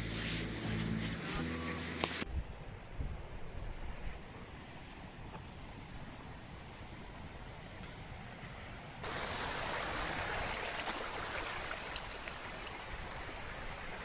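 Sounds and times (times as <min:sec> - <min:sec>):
wind rumble on microphone: 0:02.1 - 0:04.4
stream rushing over rocks: 0:09.0 - 0:14.0.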